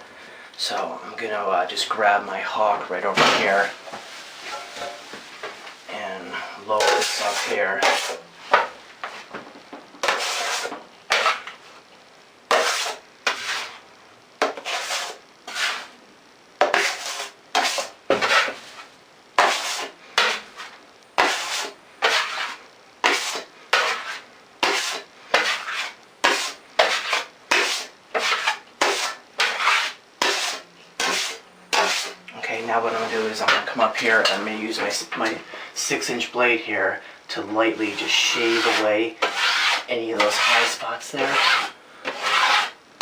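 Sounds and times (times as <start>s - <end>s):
trowel scraping plaster on metal: 6.8s - 8.8s, 10.0s - 11.6s, 12.5s - 13.8s, 14.4s - 15.9s, 16.6s - 18.6s, 19.4s - 35.4s, 37.7s - 42.8s.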